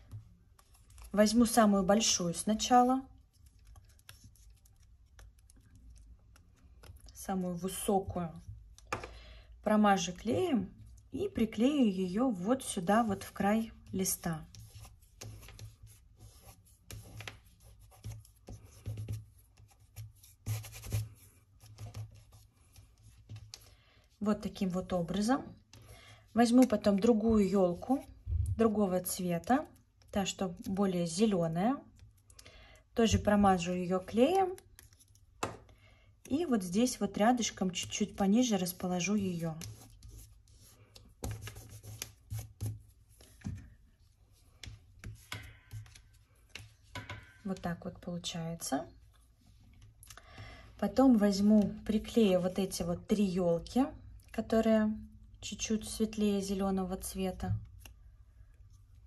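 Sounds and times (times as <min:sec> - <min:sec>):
fingertips rubbing on paper: 0:02.6 - 0:06.1, 0:14.1 - 0:23.6, 0:38.8 - 0:43.2.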